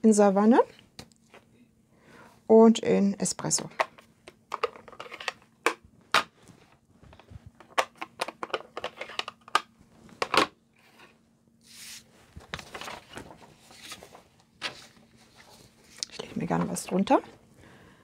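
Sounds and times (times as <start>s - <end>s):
plastic cases clicking and knocking: 3.7s - 6.4s, 7.1s - 10.6s.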